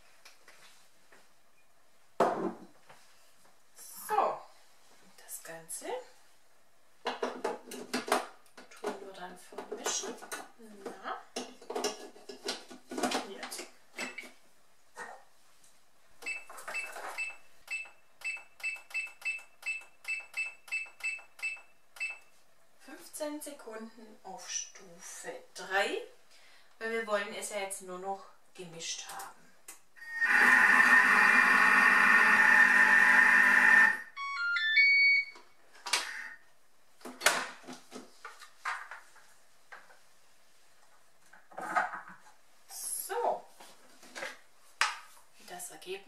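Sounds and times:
kitchen mixer motor running: 30.3s - 34.0s
short high electronic beeps: 34.2s - 35.4s.

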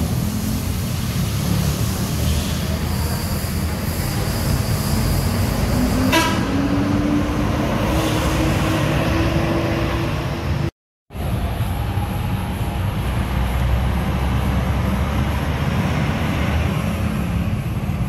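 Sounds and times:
bus engine running: 0.0s - 18.0s
short horn toot: 6.0s - 6.6s.

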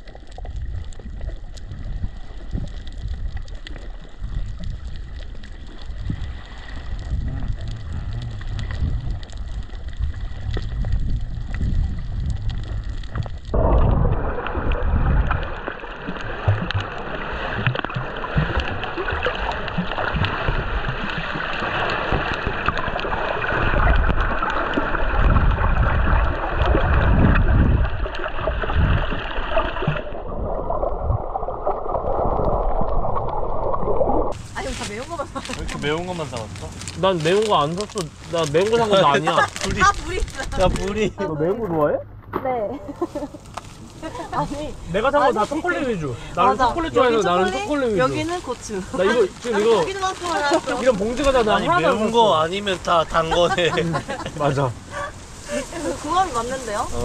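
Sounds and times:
water sloshing and gurgling: 0.0s - 57.0s
heavy low rumble: 4.2s - 15.8s, 29.9s - 47.1s.

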